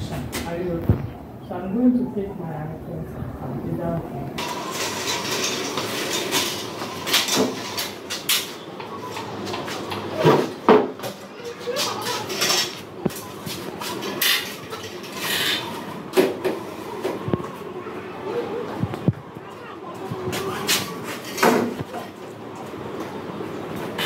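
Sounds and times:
metal folding screen clattering: 0:04.4 - 0:09.2, 0:11.6 - 0:16.2.

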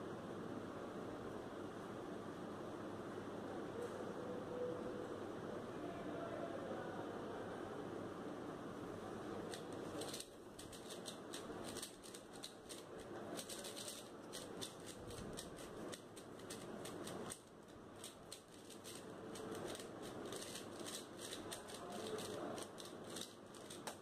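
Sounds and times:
plastic puzzle cube clicking: 0:09.5 - 0:24.0.

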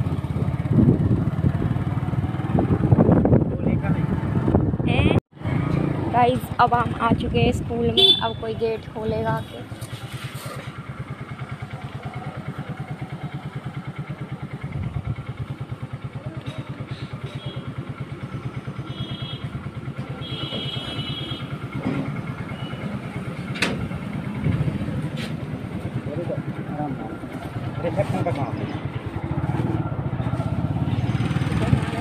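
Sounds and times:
motorcycle engine idling: 0:00.0 - 0:04.4, 0:06.5 - 0:32.0.

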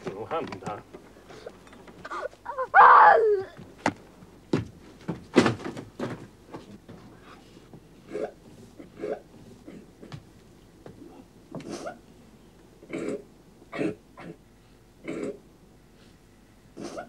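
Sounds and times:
short cries: 0:02.1 - 0:03.6.

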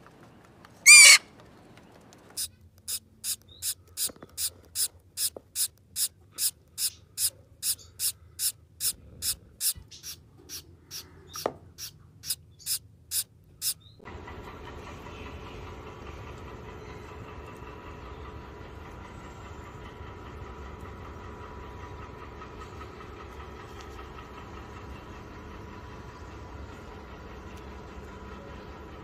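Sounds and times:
bird screech: 0:00.8 - 0:01.3
nestlings begging with raspy hisses: 0:00.9 - 0:01.2, 0:02.9 - 0:13.8.

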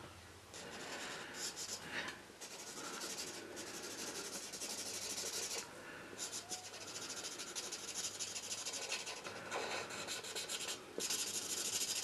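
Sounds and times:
marker scratching on paper: 0:01.4 - 0:01.8, 0:02.4 - 0:05.6, 0:06.2 - 0:12.0.

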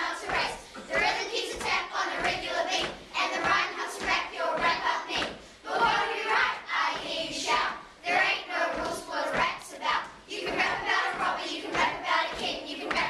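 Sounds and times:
hand clapping: 0:00.0 - 0:07.6, 0:08.2 - 0:13.0
children's voices in unison: 0:00.0 - 0:13.0.

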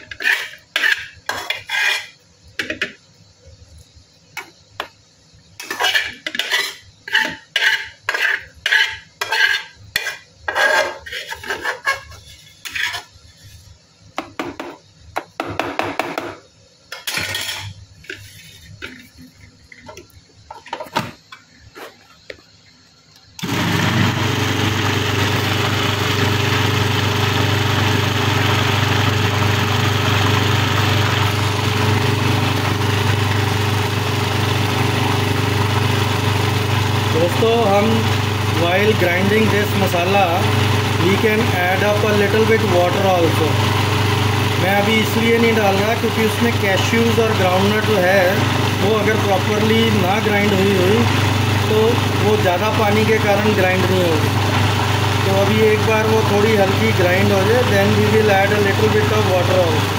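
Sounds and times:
spoon scraping cookware: 0:00.0 - 0:02.9, 0:05.6 - 0:13.6
mixer grinder whirring: 0:23.4 - 0:59.9.

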